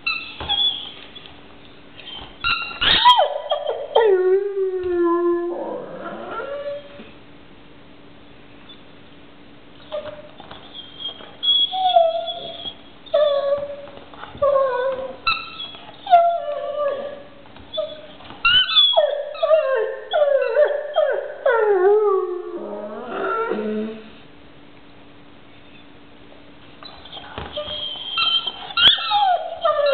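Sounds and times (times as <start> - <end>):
dog whining and howling: 0.0 - 1.3, 2.0 - 7.1, 9.8 - 24.2, 26.8 - 29.9.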